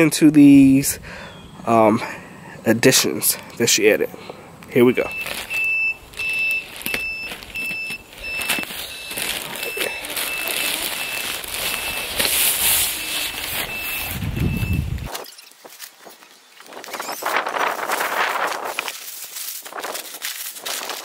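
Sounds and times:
high electronic beep: 0:04.8 - 0:12.2, 0:12.8 - 0:15.6
plastic bag crinkling: 0:04.9 - 0:15.1, 0:15.7 - 0:21.0.

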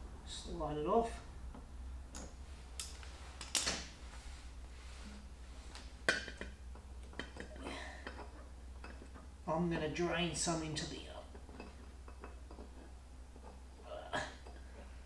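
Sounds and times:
steady low hum: 0:00.0 - 0:15.0
clicks and knocks of handling hose: 0:01.5 - 0:04.0, 0:05.7 - 0:09.3, 0:11.3 - 0:13.6.

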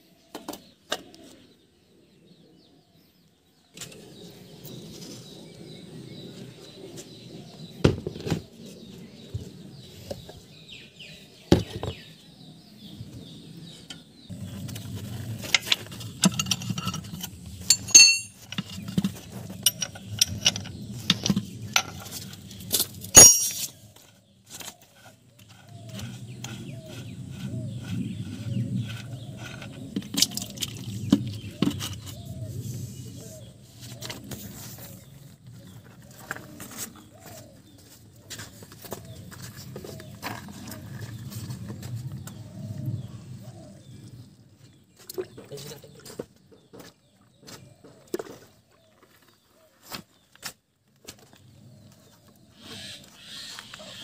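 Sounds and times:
spanner clinking on metal: 0:15.5 - 0:22.0, 0:23.1 - 0:23.7.

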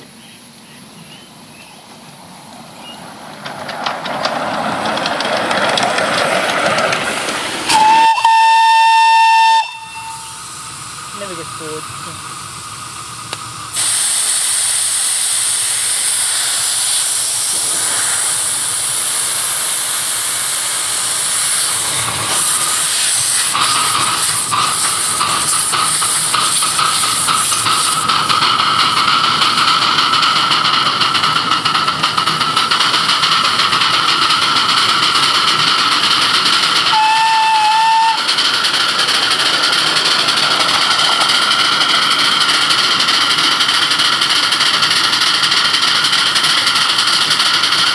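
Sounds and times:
steam hissing: 0:06.8 - 0:47.9
steam whistle toot: 0:07.7 - 0:10.4, 0:36.9 - 0:38.3.

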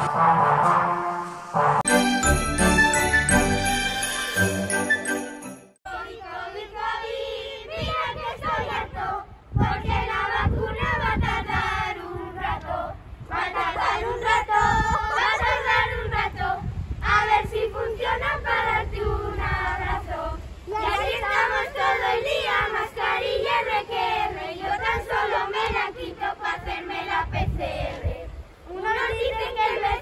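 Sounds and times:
children singing a carol: 0:05.9 - 0:30.0.

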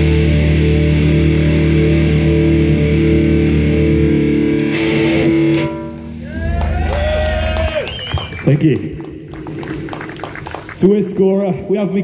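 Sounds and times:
bending guitar notes: 0:00.0 - 0:06.8
distorted electric guitars: 0:00.0 - 0:12.0.

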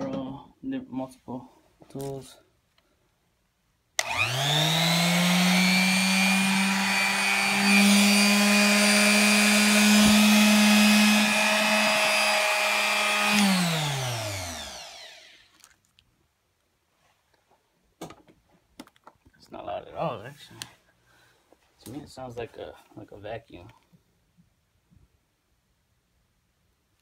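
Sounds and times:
sander motor running: 0:04.0 - 0:15.5.

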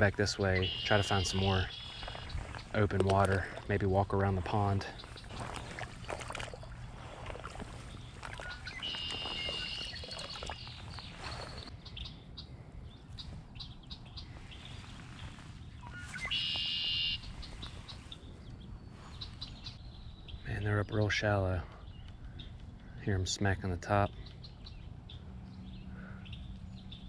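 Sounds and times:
wading splashes in pond: 0:00.6 - 0:11.7
bird buzzy trilled call: 0:08.4 - 0:11.7, 0:15.8 - 0:17.3.

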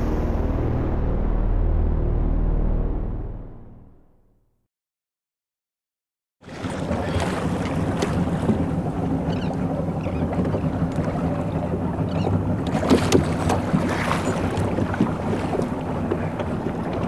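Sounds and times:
boat motor running: 0:06.4 - 0:17.0.

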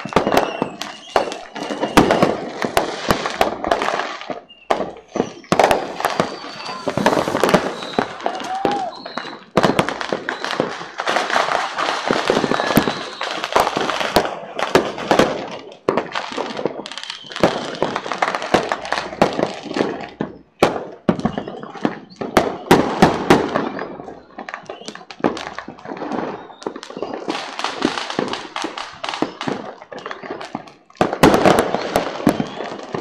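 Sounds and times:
fireworks bangs and crackles: 0:00.0 - 0:33.0.

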